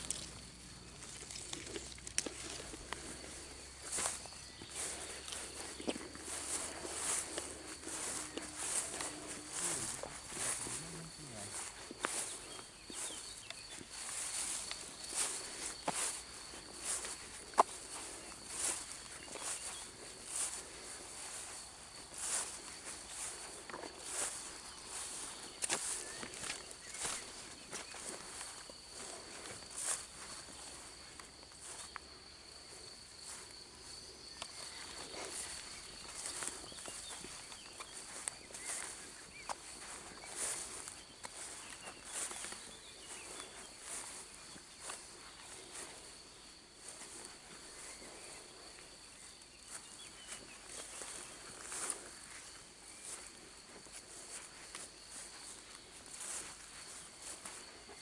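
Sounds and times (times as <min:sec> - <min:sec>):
plants rustling: 0:00.0 - 0:31.8, 0:34.3 - 0:45.9
cricket trilling: 0:00.0 - 0:58.0
soft footsteps: 0:00.0 - 0:58.0.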